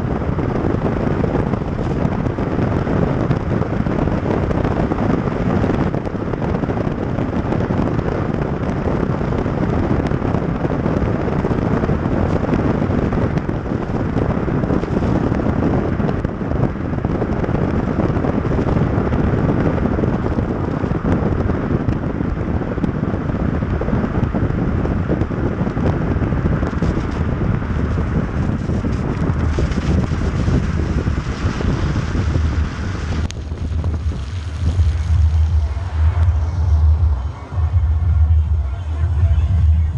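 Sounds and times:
wind buffeting microphone: 0:00.0 - 0:39.9
tyre noise on wet road: 0:20.6 - 0:37.6.

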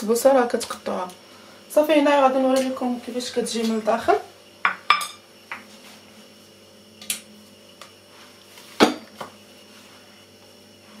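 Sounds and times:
faint steady hum: 0:00.0 - 0:11.0
kitchenware clinking: 0:04.6 - 0:05.2.

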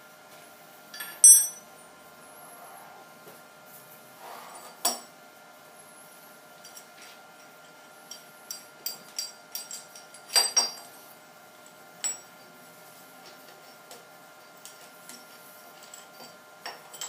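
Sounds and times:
metal clamp parts clinking: 0:01.0 - 0:01.6.

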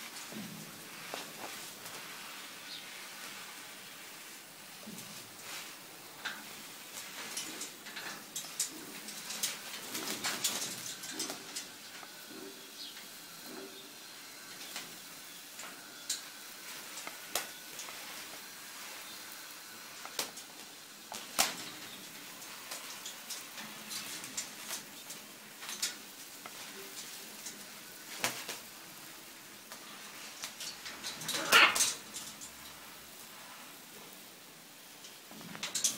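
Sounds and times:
faint steady hiss: 0:00.0 - 0:35.9
shower of water: 0:00.0 - 0:35.9
birds flapping in metal cage: 0:04.7 - 0:33.6, 0:35.2 - 0:35.9.

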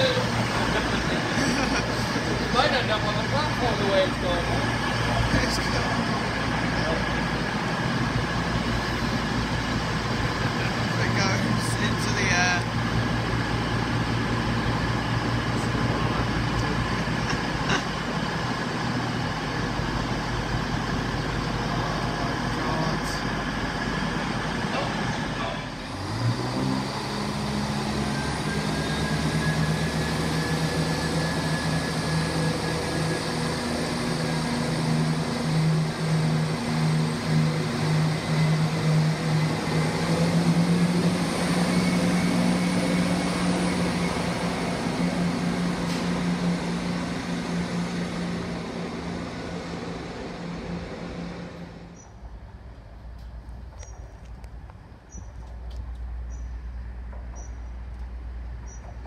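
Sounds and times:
diesel train engines revving: 0:00.0 - 0:59.0.

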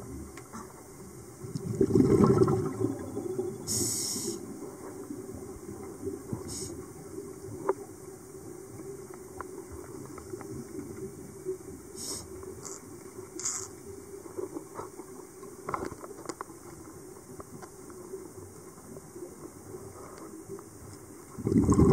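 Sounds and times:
exhaled bubbles underwater: 0:01.4 - 0:07.9, 0:21.3 - 0:21.9
regulator hiss: 0:03.6 - 0:04.8, 0:06.3 - 0:07.0, 0:11.9 - 0:12.8.

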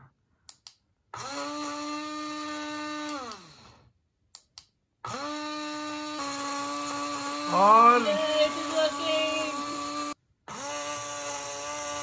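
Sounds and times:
blender motor whining: 0:01.2 - 0:03.8, 0:05.1 - 0:12.0.

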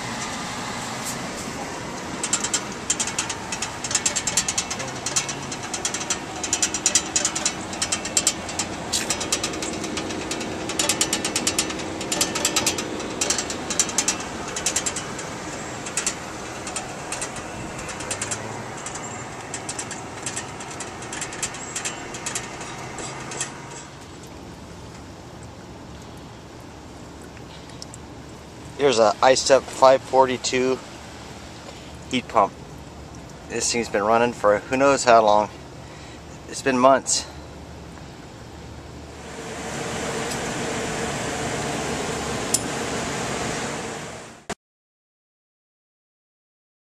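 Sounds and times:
air conditioner running: 0:00.0 - 0:44.4
mechanical clicking and rattling: 0:01.8 - 0:24.4.

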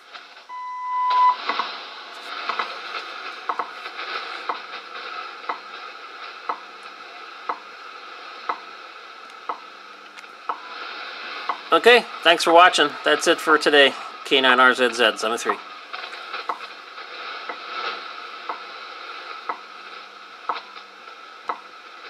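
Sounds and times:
radio static hiss: 0:00.0 - 0:22.0
long radio beep: 0:00.5 - 0:02.7
steady radio ticks: 0:03.4 - 0:04.8, 0:05.4 - 0:07.7, 0:08.4 - 0:10.7, 0:14.5 - 0:16.7, 0:19.4 - 0:19.7, 0:20.5 - 0:21.7.

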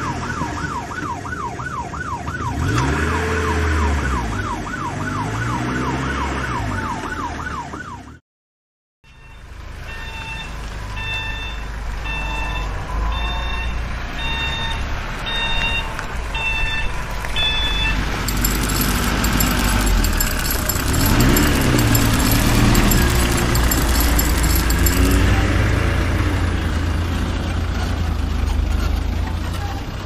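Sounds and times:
wailing police siren: 0:00.0 - 0:08.2
rattling machine noise: 0:18.2 - 0:25.6.

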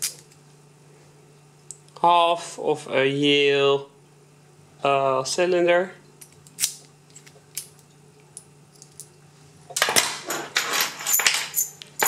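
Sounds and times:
metal keys clinking and rattling: 0:08.7 - 0:09.2, 0:09.8 - 0:12.0.

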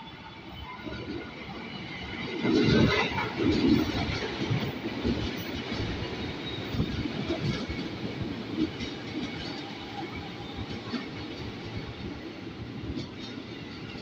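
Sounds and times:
train wheels rumbling on rails: 0:00.0 - 0:14.0
train wheels clacking: 0:02.4 - 0:12.0.

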